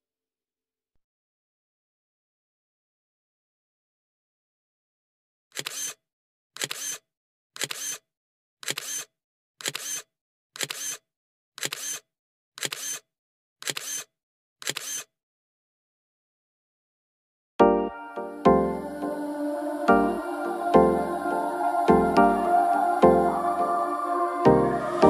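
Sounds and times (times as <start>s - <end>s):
short sharp clicks: 5.6s - 6.0s, 6.6s - 7.0s, 8.6s - 11.0s, 11.6s - 15.1s.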